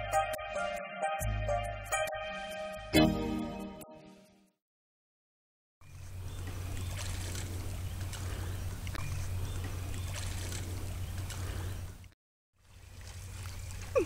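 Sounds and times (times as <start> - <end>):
water lapping at shore: 6.1 - 14.0
small water splashes: 6.4 - 14.0.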